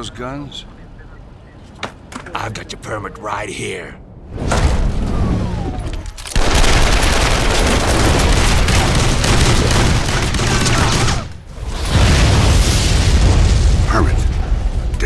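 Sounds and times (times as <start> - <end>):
automatic gunfire with heavy booms: 6.3 - 11.3.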